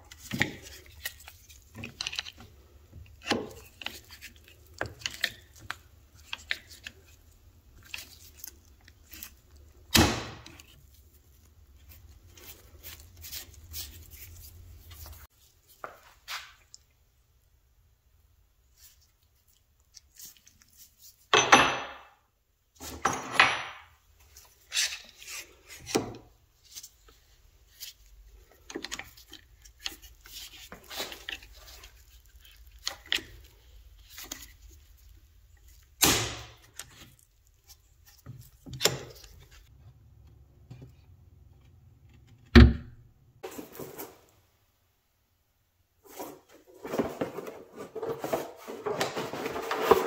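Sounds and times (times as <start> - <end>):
parts knocking and clattering: 22.8 - 24.0.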